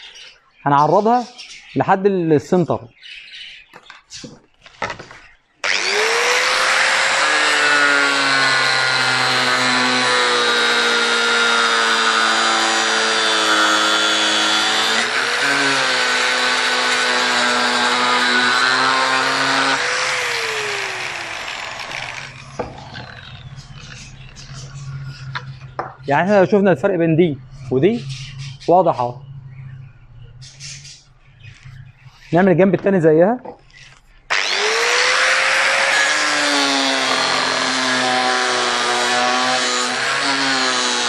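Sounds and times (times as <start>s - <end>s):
angle grinder cutting metal panel: 5.6s - 24.2s, 34.3s - 41.0s.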